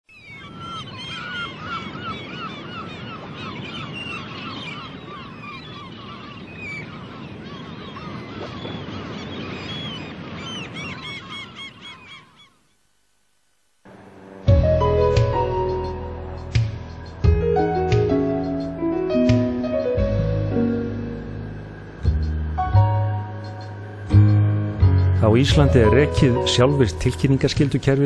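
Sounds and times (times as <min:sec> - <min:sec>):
flock of birds calling: 0:00.1 - 0:12.6.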